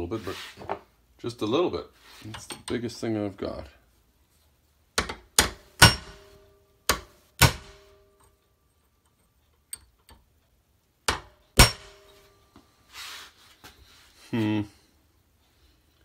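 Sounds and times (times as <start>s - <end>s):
hammer striking steel punch: 5.0s - 8.1s, 11.1s - 12.2s.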